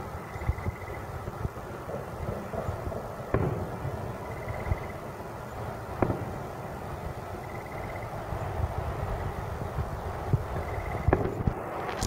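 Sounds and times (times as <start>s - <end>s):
firework shell bursting: 10.4s - 12.0s.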